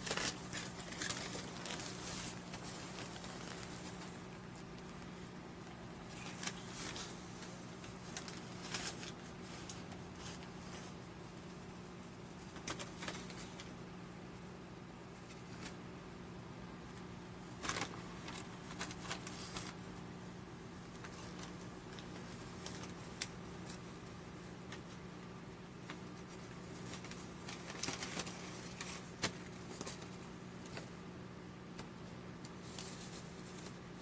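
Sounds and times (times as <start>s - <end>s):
paper bag rustling: 0.0s - 11.1s, 17.5s - 19.9s, 20.8s - 25.0s, 25.8s - 31.0s.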